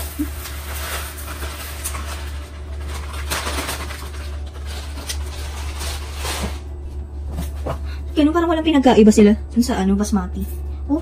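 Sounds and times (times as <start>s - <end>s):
plastic bag and container rattling: 0.0s - 6.8s.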